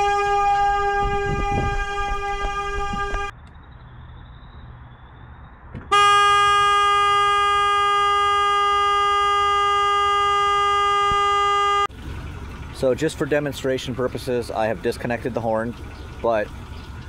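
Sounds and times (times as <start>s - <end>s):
truck horn blasting: 0.0s - 3.3s, 5.9s - 11.9s.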